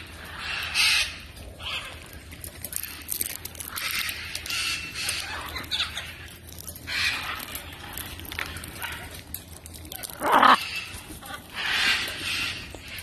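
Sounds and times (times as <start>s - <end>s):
macaws calling harshly: 0.0s - 2.0s, 10.0s - 13.0s.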